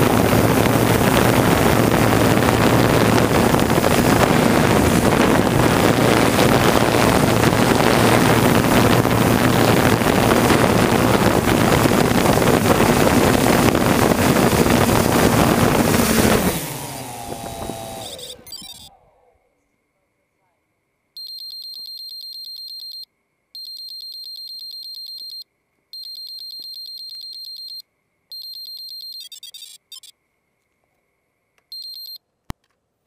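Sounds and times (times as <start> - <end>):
drone rotors running: 0.0 - 19.0
drone motors spinning down: 13.6 - 19.2.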